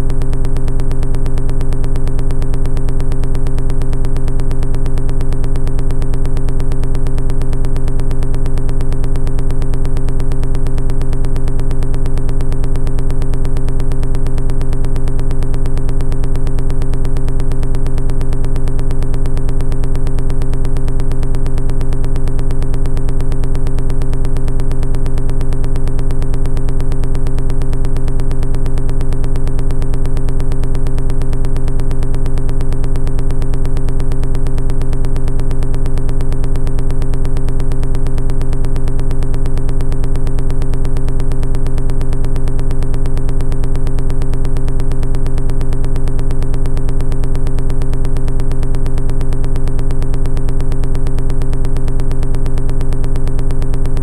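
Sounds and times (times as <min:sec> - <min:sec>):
low buzzing synthesizer drone: 0:00.0 - 0:54.0.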